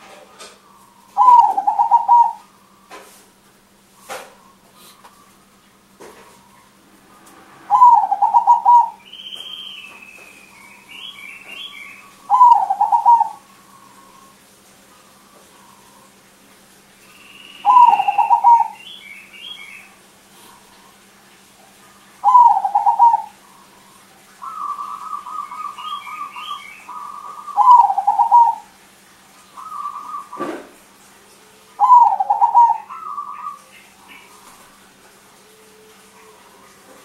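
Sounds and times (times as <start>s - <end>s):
dove cooing: 0.7s - 2.8s, 7.6s - 16.1s, 17.6s - 19.6s, 21.9s - 28.8s, 29.5s - 37.0s.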